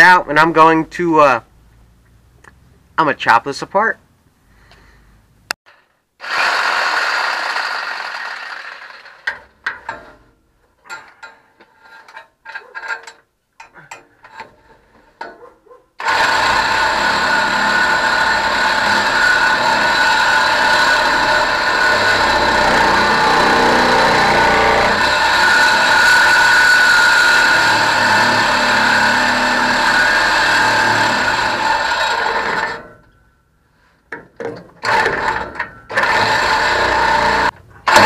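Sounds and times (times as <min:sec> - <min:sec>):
reciprocating saw cutting metal pipe: 0:06.2 - 0:10.3, 0:16.0 - 0:33.1, 0:34.8 - 0:38.0.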